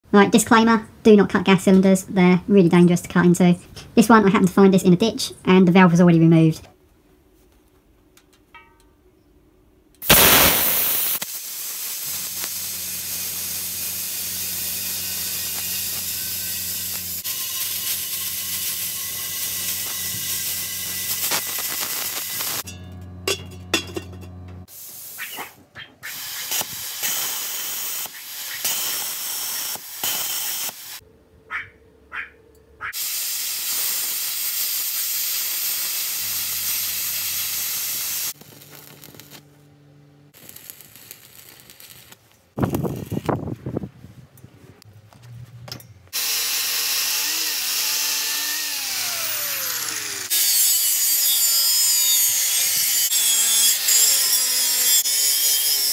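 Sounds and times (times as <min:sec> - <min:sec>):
plasma cutter hissing: 0:10.0 - 0:22.6, 0:24.7 - 0:31.0, 0:33.0 - 0:39.4, 0:40.4 - 0:43.4, 0:46.2 - 0:55.9
low electrical hum: 0:22.7 - 0:24.7, 0:38.4 - 0:46.1.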